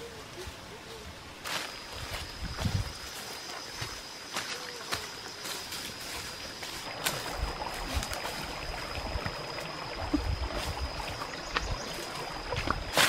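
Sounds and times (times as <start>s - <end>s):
wind rumbling on microphone: 2.0s - 3.1s, 7.2s - 13.0s.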